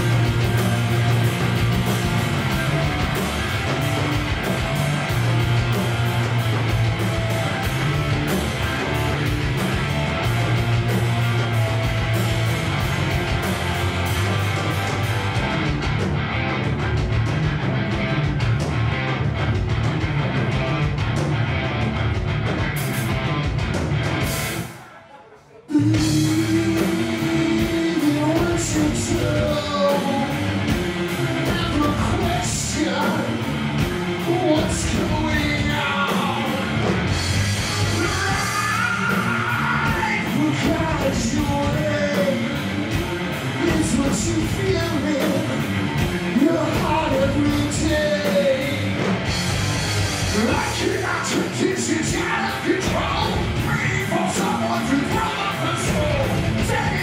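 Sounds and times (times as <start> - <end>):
live hard rock band: 0.0 - 24.9, 25.7 - 57.0
man singing and shouting: 24.7 - 49.1, 50.2 - 57.0.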